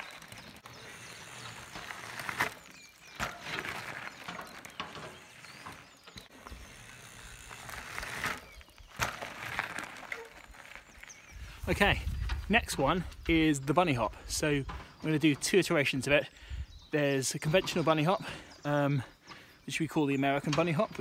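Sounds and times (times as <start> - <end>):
bike clicks and knocks: 0.0 - 11.3, 20.3 - 21.0
bike tyres crunching on gravel: 0.0 - 16.0.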